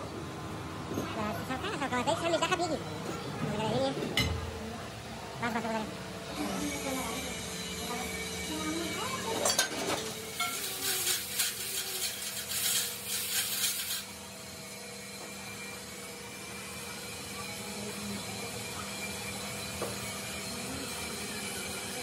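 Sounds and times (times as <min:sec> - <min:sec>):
scraping on metal rod: 0:10.4 - 0:14.1.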